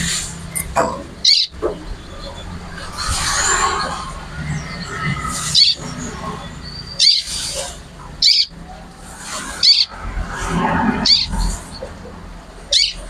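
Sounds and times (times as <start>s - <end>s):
bird calling high sharp notes: 0.5s - 8.6s, 9.6s - 10.0s, 11.0s - 11.5s, 12.7s - 13.0s.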